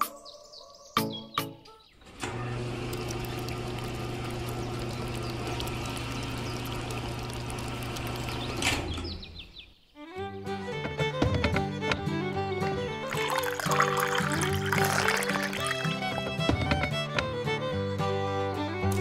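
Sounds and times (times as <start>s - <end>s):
small electric motor humming: 2.3s - 8.6s.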